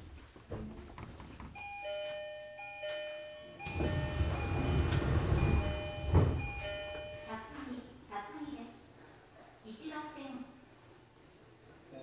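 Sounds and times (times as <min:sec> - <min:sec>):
bell-like chime melody: 0:01.6 - 0:07.4.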